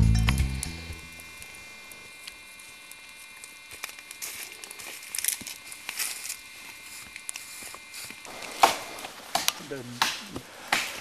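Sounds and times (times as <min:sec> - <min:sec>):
campfire crackling: 0:00.0 - 0:11.0
people rustling and handling things: 0:03.2 - 0:11.0.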